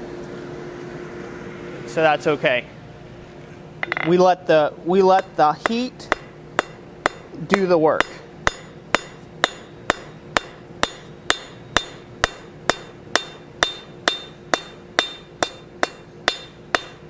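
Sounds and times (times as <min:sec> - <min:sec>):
hammer tapping hot steel on anvil: 0:03.8 - 0:04.2, 0:05.1 - 0:17.0
anvil ringing: 0:05.2 - 0:17.0.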